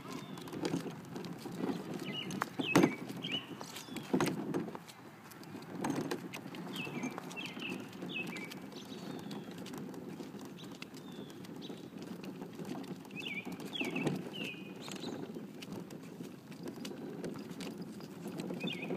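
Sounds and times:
toy wagon wheels rolling on asphalt: 0:00.0 - 0:18.9
wheel clicks: 0:00.0 - 0:18.9
bird chirping: 0:02.0 - 0:04.2, 0:06.7 - 0:09.6, 0:13.2 - 0:15.2, 0:18.6 - 0:18.9.

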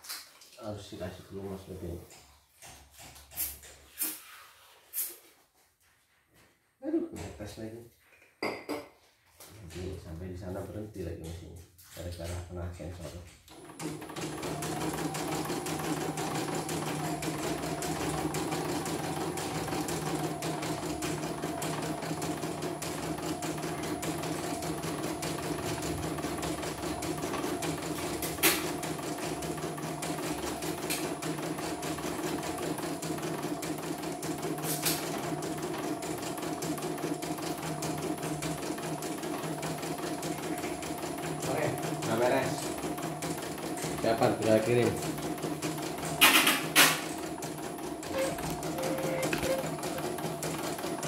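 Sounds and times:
embroidery machine stitching: 0:13.5 - 0:51.0.

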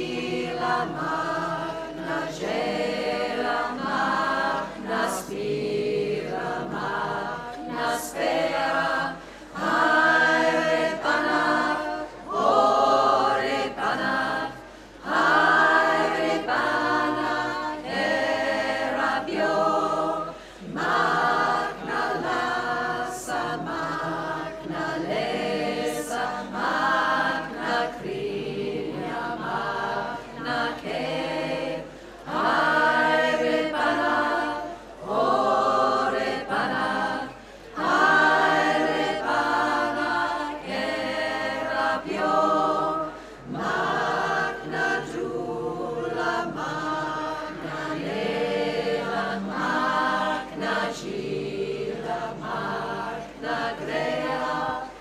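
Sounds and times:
women's choir singing a cappella: 0:00.0 - 0:55.0.

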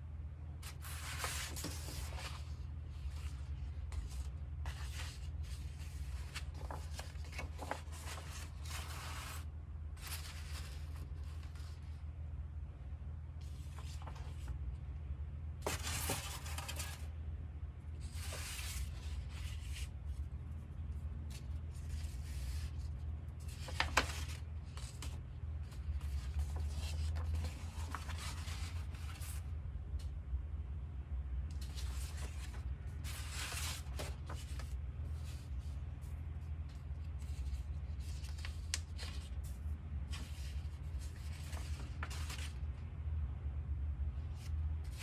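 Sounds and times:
steady low hum: 0:00.0 - 0:45.0
paper rustling and crinkling: 0:00.6 - 0:12.0, 0:13.4 - 0:14.6, 0:15.6 - 0:17.1, 0:18.0 - 0:20.3, 0:21.2 - 0:29.5, 0:31.5 - 0:42.8, 0:44.3 - 0:45.0.

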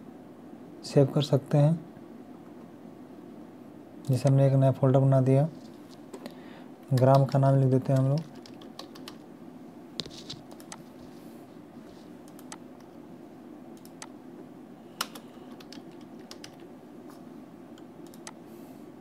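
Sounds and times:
faint steady hum: 0:00.0 - 0:19.0
typing on computer keyboard: 0:06.9 - 0:09.2, 0:10.1 - 0:10.9, 0:12.3 - 0:12.6, 0:15.0 - 0:16.7.

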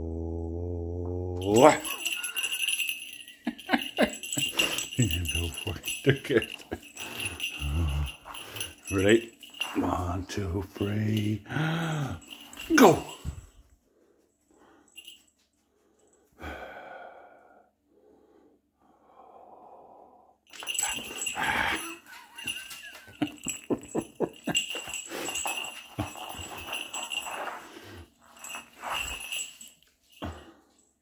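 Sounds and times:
cat collar bell jingling: 0:01.4 - 0:13.7, 0:14.8 - 0:15.6, 0:20.5 - 0:31.0.

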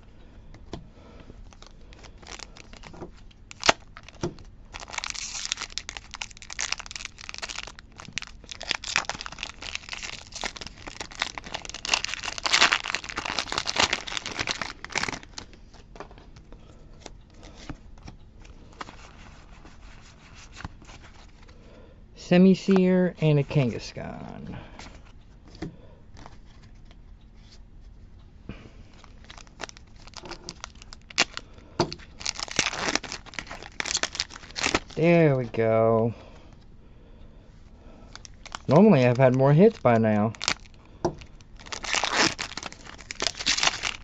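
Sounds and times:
foil pack tearing and crinkling: 0:01.5 - 0:15.6, 0:29.0 - 0:35.4, 0:38.1 - 0:44.0.

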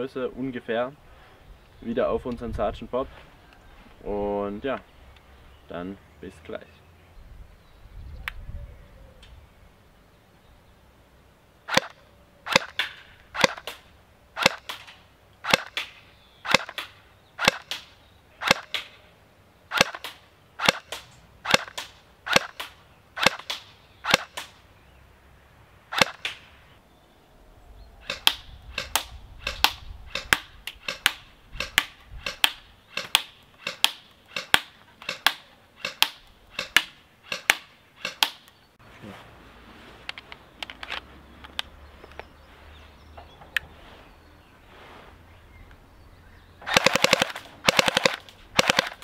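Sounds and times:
airsoft pistol shots: 0:11.7 - 0:13.8, 0:14.4 - 0:18.9, 0:19.7 - 0:24.5, 0:25.9 - 0:26.5, 0:46.7 - 0:49.0.

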